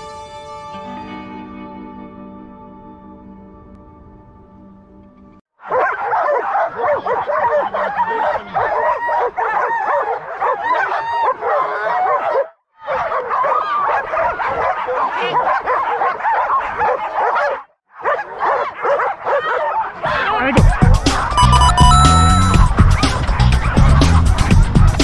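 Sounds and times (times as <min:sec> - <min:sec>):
many dogs barking and yelping: 0:05.6 - 0:25.0.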